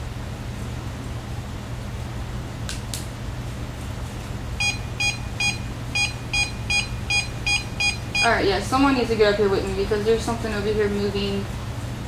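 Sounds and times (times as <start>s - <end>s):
steady low hum: 0.0s - 12.0s
short high electronic beeps: 4.6s - 8.3s.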